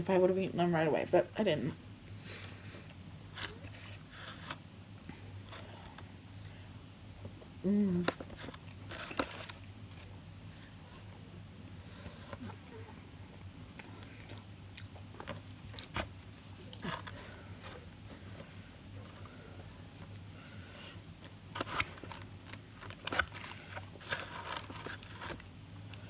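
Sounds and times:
faint low hum: 0.0 - 26.0
paper wrapping crinkling: 8.2 - 11.1, 21.5 - 26.0.

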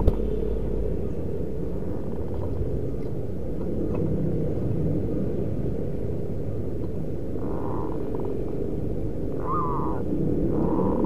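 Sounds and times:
low background rumble: 0.0 - 11.0.

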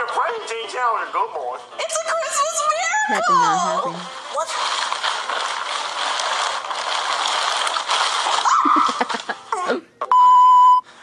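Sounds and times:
wrapping paper rustling: 3.1 - 9.6.

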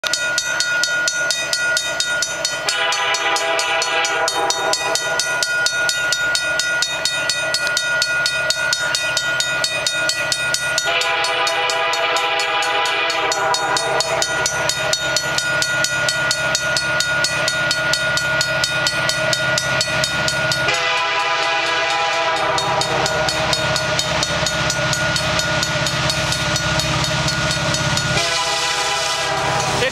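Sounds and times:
crossing bell ringing: 0.0 - 29.9
locomotive air horn blasts: 2.6 - 5.1, 10.8 - 14.6, 20.6 - 23.5, 28.1 - 29.9.

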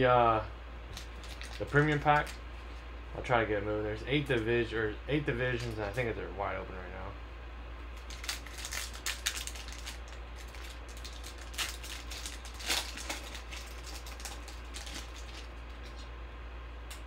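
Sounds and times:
foil wrapper tearing and crinkling: 0.9 - 2.4, 8.0 - 16.0.

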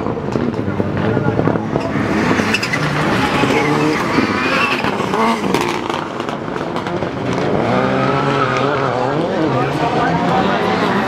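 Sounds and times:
race car engine revving: 0.0 - 11.0.

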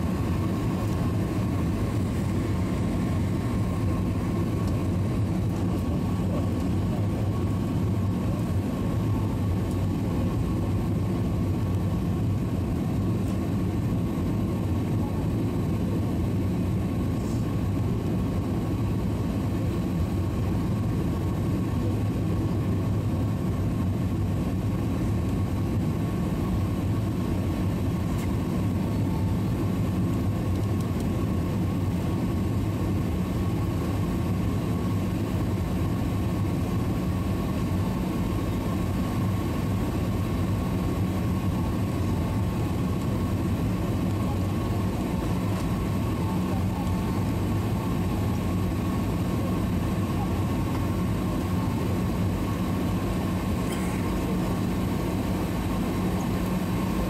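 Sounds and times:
faint steady whine: 0.0 - 57.0
low rumble of engines and airflow: 0.0 - 57.0.

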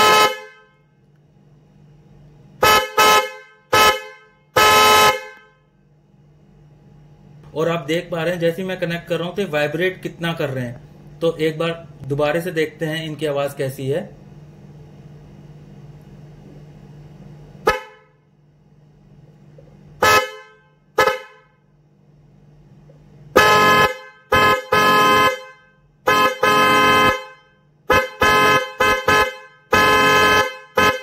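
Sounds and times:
two-tone horn blasts: 0.0 - 0.8, 2.6 - 5.6, 17.6 - 18.2, 20.0 - 21.6, 23.3 - 31.0.

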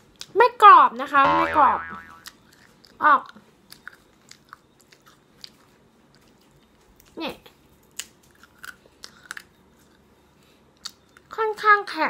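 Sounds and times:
crunchy chip chewing: 3.7 - 7.2, 7.8 - 10.0.

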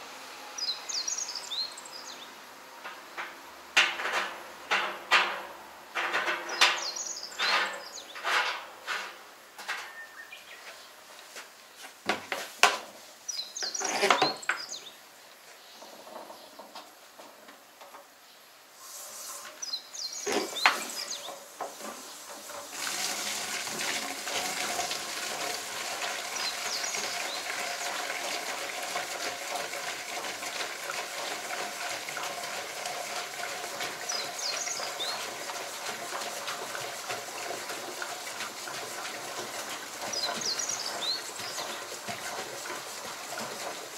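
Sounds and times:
pump knocks and clicks: 2.9 - 8.6, 27.0 - 43.9
bird chirping: 9.8 - 10.9, 19.6 - 21.4
liquid filling a can: 20.2 - 43.9.

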